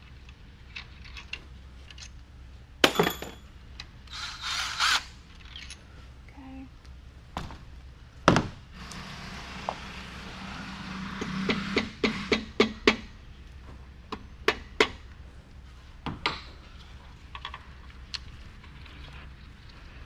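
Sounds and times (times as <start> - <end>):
sharp metal knocks: 2.8 - 3.4
metal tools clanking: 2.8 - 3.5.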